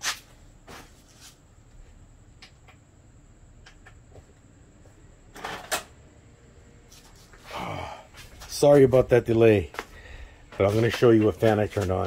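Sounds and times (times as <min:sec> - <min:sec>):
shuffling: 0:00.0 - 0:02.0, 0:06.8 - 0:12.0
steady room hum: 0:00.0 - 0:12.0.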